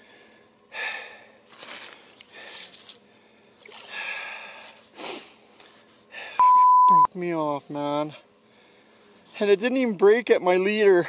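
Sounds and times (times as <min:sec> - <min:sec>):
man breathing hard: 0:00.0 - 0:06.4.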